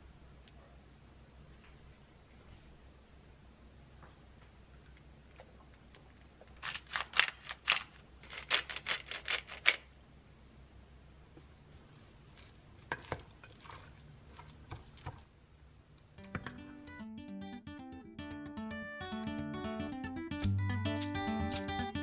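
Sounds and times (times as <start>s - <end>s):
spice shaker rattling: 6.6s - 9.9s.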